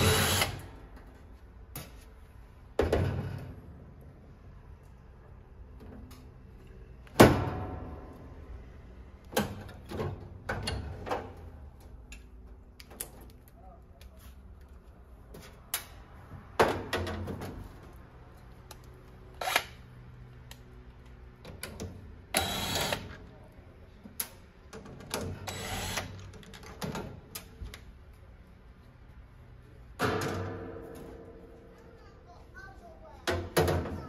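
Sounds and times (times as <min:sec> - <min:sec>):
impact driver on screw: 0:00.0 - 0:00.6, 0:19.4 - 0:19.8, 0:22.3 - 0:23.2, 0:25.4 - 0:26.3.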